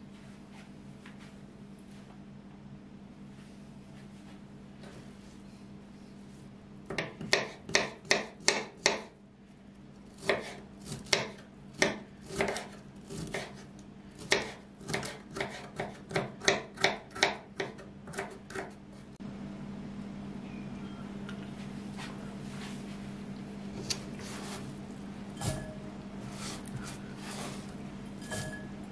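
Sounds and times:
knife chopping on wooden board: 6.9s - 9.1s, 10.2s - 18.8s.

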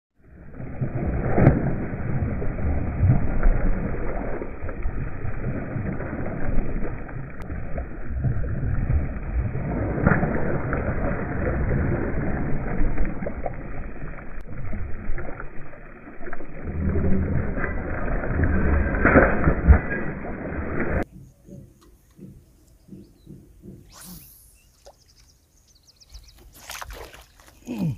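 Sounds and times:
fish splashing in water: 0.4s - 21.0s, 26.4s - 27.9s.

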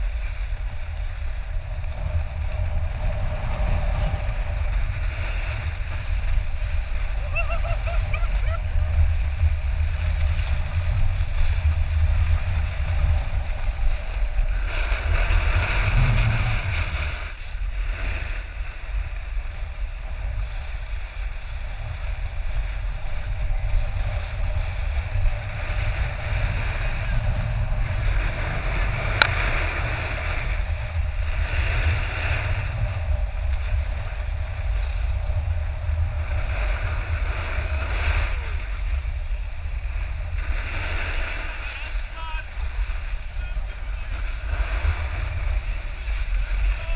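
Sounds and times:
snowboard sliding on snow: 0.0s - 46.9s
wind buffeting camera: 0.0s - 46.9s.

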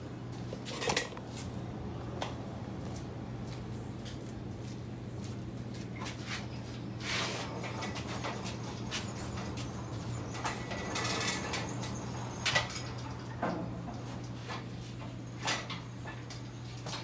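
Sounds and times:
metal frame clanks and rattles: 0.6s - 1.2s, 7.1s - 17.0s.

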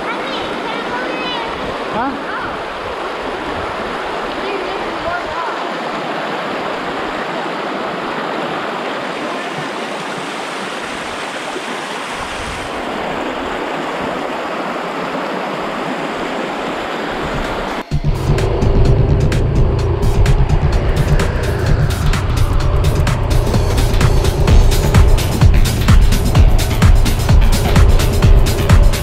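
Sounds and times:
river water rushing: 0.0s - 29.0s
low rumble: 17.9s - 29.0s.

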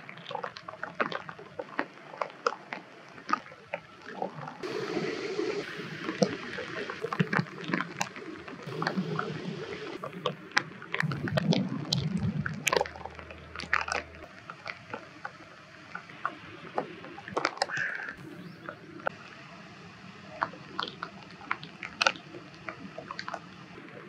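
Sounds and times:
water sloshing and splashing: 0.0s - 19.2s.

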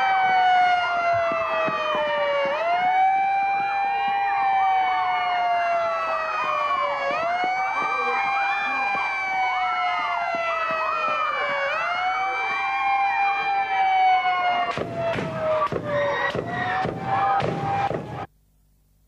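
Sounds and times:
siren wailing: 0.0s - 18.3s
rapid sharp bangs: 14.7s - 18.3s
people crying and screaming: 15.2s - 18.3s.

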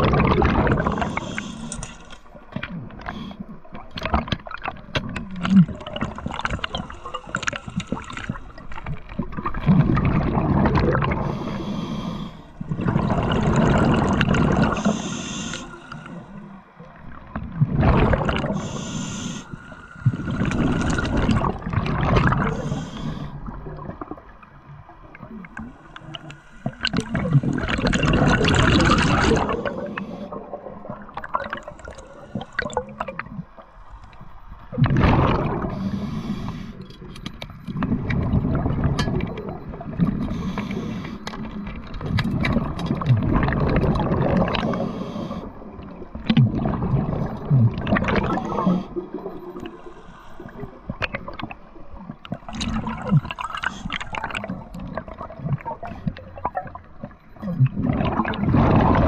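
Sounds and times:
exhaled bubbles underwater: 0.0s - 59.0s
quiet regulator inhalations: 0.8s - 3.6s, 6.4s - 8.8s, 11.2s - 12.8s, 14.7s - 16.9s, 18.4s - 21.2s, 22.3s - 23.6s, 25.4s - 27.9s, 29.4s - 30.5s, 31.5s - 33.0s, 35.7s - 37.1s, 40.1s - 41.6s, 44.6s - 45.8s, 48.2s - 51.7s.

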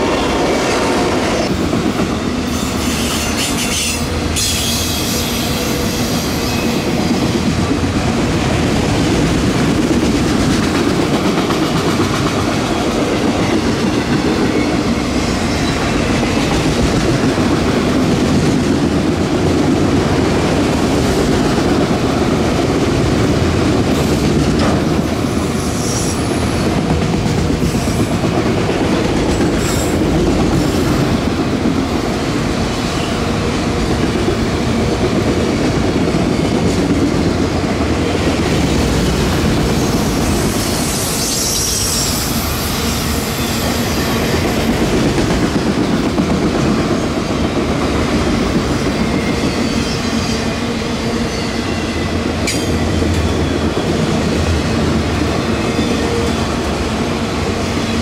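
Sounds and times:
freight train wheels rumbling: 0.0s - 58.0s
train wheel squeals: 2.2s - 7.1s, 13.4s - 16.6s, 25.3s - 26.8s, 29.3s - 31.0s, 39.3s - 44.9s, 48.4s - 54.2s, 55.5s - 56.7s.

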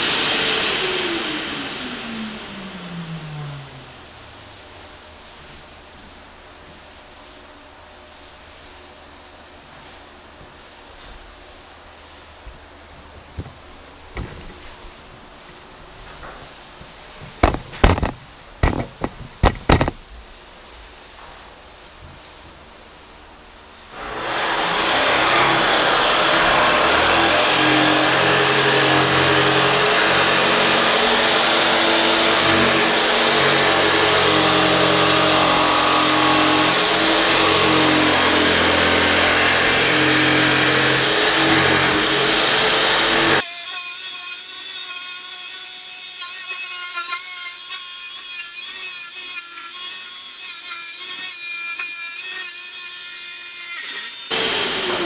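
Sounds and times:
power tool working wood: 0.0s - 3.8s, 24.0s - 43.4s, 54.2s - 55.0s.

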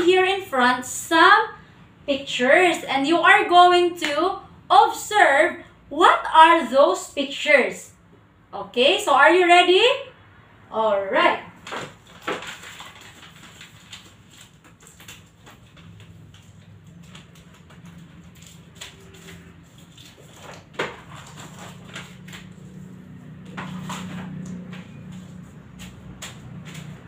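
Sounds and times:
paper rustling and crinkling: 11.6s - 27.0s.

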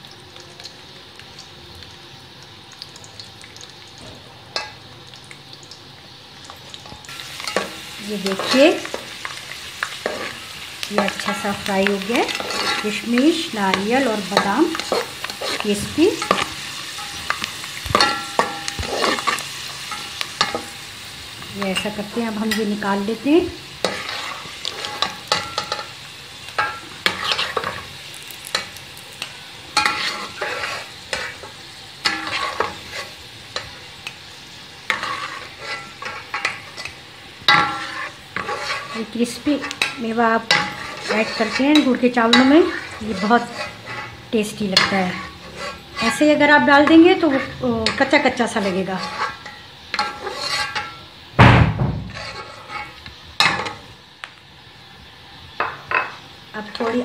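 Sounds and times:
hot oil sizzling: 0.0s - 57.0s.

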